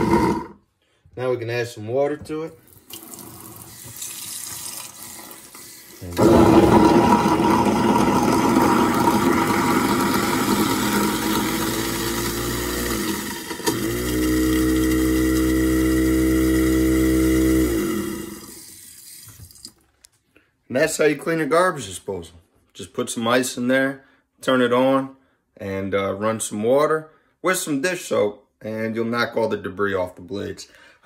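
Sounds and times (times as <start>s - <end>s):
garbage disposal motor grinding: 0.0s - 0.6s, 5.4s - 19.4s
tap water running: 2.6s - 19.8s.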